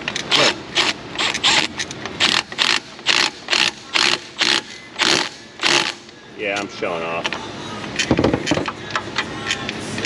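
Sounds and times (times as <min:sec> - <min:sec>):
impact wrench hammering: 0:00.2 - 0:06.1.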